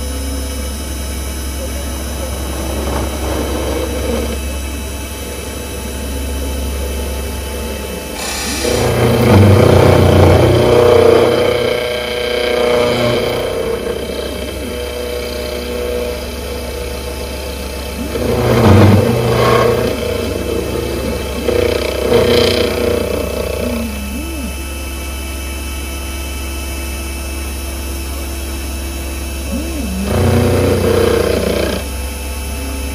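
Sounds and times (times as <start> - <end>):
milling machine cutting metal: 0.1 - 25.8, 28.4 - 32.4.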